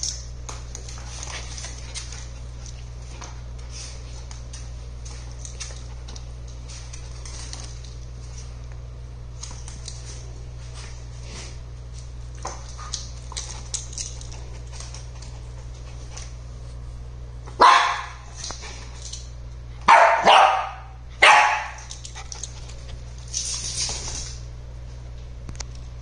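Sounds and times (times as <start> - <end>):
dog claws clicking and scuffling: 0.0 - 11.0, 11.9 - 16.4, 18.2 - 19.4, 21.6 - 24.4
dogs barking: 17.5 - 18.2, 19.8 - 21.9.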